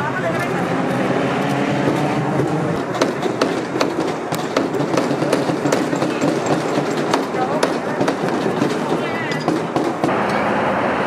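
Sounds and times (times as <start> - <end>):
steady background din: 0.0 - 10.8
hammers tapping nails: 2.8 - 10.2.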